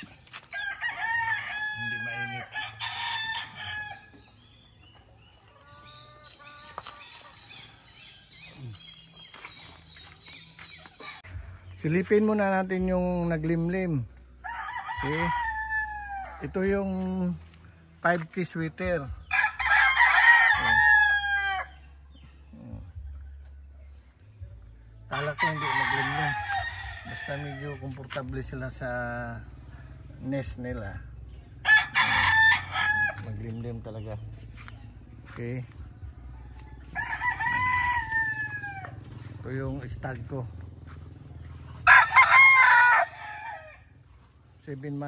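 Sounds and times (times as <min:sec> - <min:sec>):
small birds chirping: 0:00.0 - 0:45.0
rooster crowing: 0:00.5 - 0:04.2, 0:14.4 - 0:16.4, 0:19.3 - 0:21.7, 0:31.6 - 0:33.3, 0:36.9 - 0:39.0, 0:41.8 - 0:44.0.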